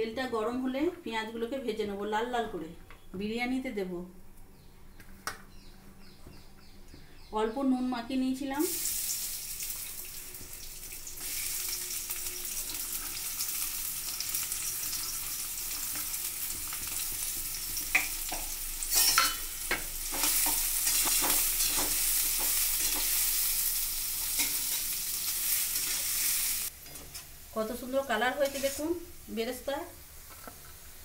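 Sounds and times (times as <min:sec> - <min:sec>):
onions sizzling in oil: 0:08.6 - 0:31.0.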